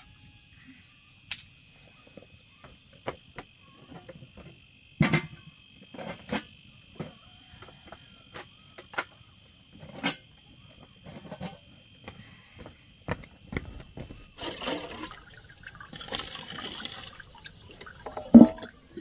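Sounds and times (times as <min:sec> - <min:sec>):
high insect chirring: 0:13.6 - 0:19.0
metal pots knocking and clinking: 0:14.4 - 0:19.0.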